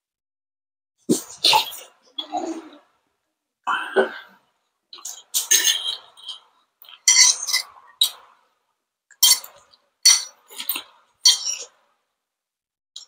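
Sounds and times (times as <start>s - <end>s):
fork clinking on plate: 5.4s - 8.2s, 9.2s - 11.7s.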